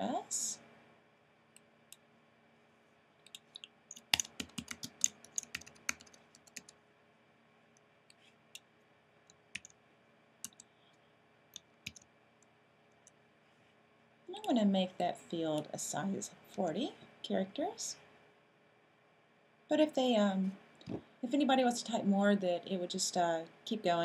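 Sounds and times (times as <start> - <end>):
keyboard typing: 3.2 - 6.8, 9.5 - 9.8, 10.4 - 10.7, 11.6 - 12.1.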